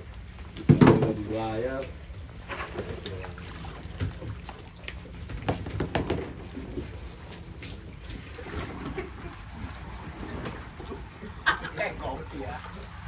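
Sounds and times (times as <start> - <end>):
boat engine humming: 0.0 - 13.0
water sounds: 0.0 - 13.0
sharp knocks: 5.5 - 6.3.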